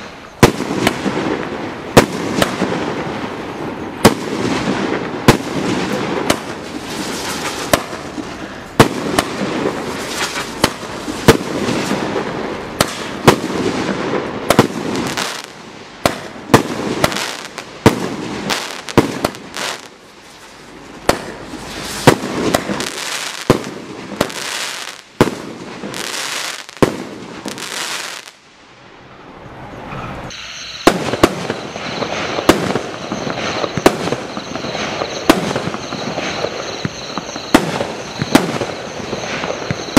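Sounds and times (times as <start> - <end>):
crackling of bursting stars: 0.0 - 15.6, 17.0 - 28.4, 30.3 - 39.9
firework bangs: 0.0 - 28.4, 30.3 - 39.9
steady high tone: 29.7 - 39.9.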